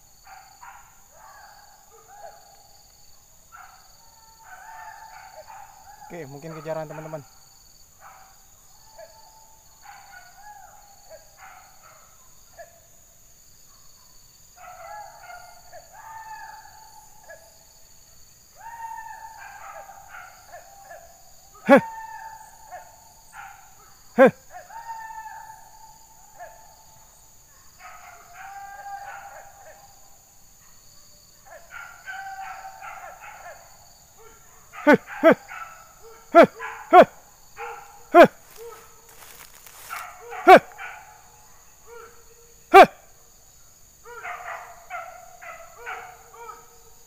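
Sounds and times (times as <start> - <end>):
insects buzzing: 0.0 - 47.0
hunting dogs baying: 3.5 - 7.4, 18.7 - 30.1, 31.4 - 43.1, 44.0 - 47.0.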